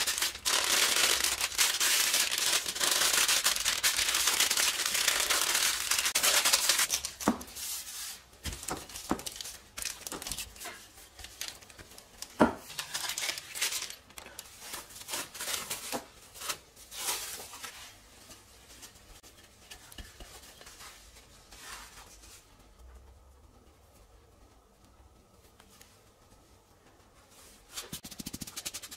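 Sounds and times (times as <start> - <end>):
cling film crackling: 0.0 - 7.2
baking paper rustling: 0.0 - 22.6.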